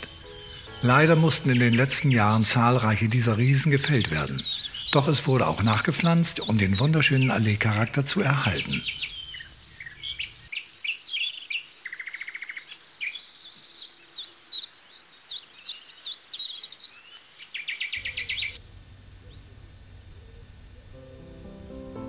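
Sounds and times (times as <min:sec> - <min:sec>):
songbirds singing: 0:00.0 - 0:21.0
low steady background noise: 0:17.9 - 0:22.0.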